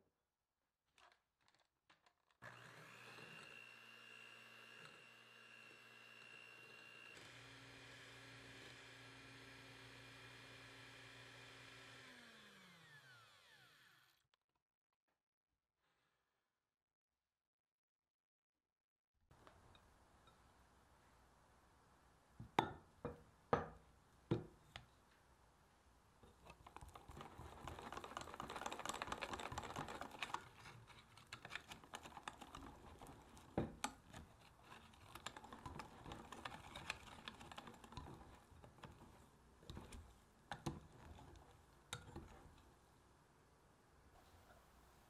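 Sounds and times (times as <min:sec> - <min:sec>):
whisk scraping glass jug: 0:26.8 - 0:42.4.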